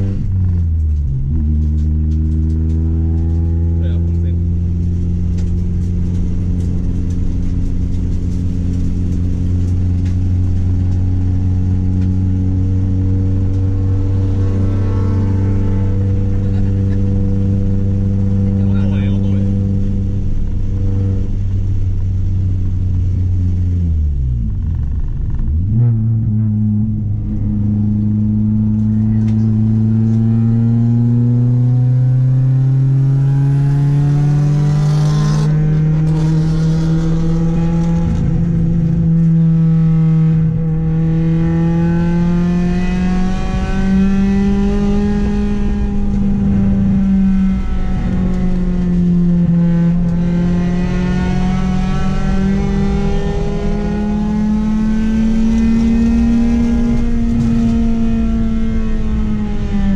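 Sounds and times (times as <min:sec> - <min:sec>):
car engine revving hard: 0:25.3 - 0:59.9.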